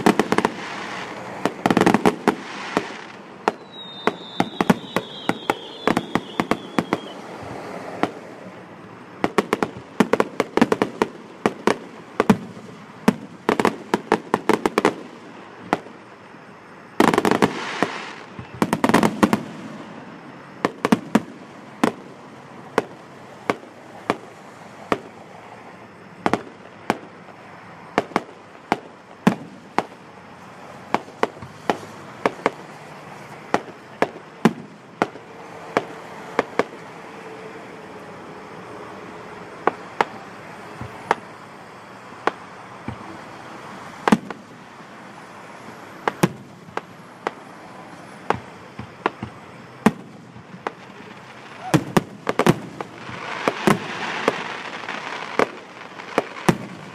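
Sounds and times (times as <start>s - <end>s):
fireworks bursting with sharp bangs: 0.0s - 37.6s, 38.4s - 56.9s.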